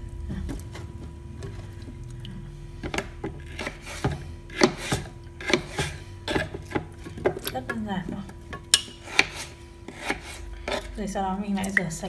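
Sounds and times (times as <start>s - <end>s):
faint steady hum: 0.0s - 12.0s
knife slicing potato: 2.9s - 6.9s, 8.8s - 11.0s.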